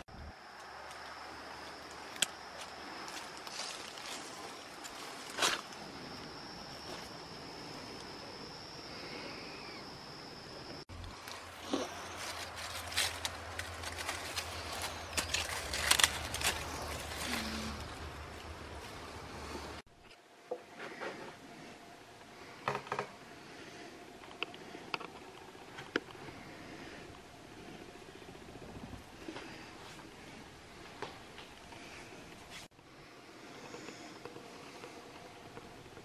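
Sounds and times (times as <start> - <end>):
high insect trill: 0.1 - 19.8
rustling of flower stems: 0.6 - 7.2, 11.0 - 19.8.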